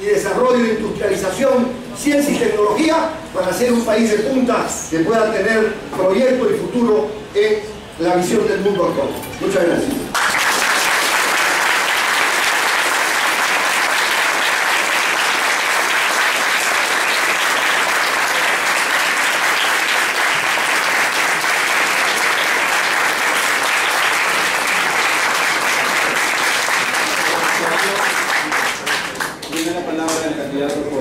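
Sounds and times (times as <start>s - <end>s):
audience applauding: 10.1s - 30.2s.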